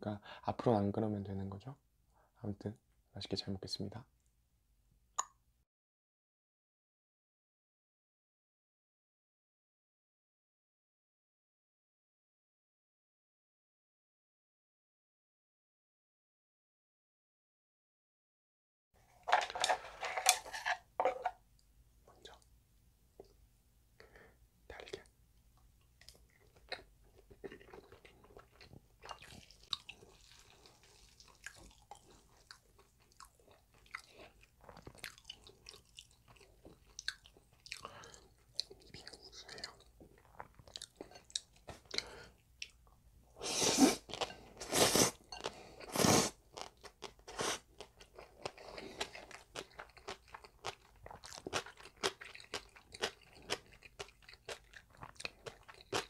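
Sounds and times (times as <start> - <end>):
chewing and wet mouth sounds: 25.8 - 43.0, 44.0 - 56.0
slurping noodles: 43.4 - 46.4.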